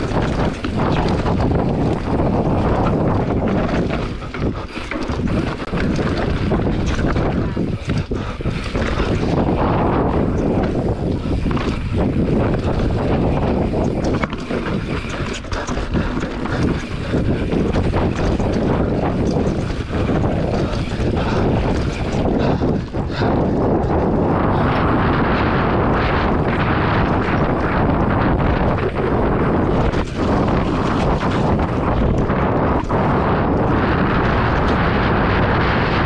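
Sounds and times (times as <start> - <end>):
motorcycle engine running: 0.0 - 36.0
wind noise on microphone: 0.0 - 36.0.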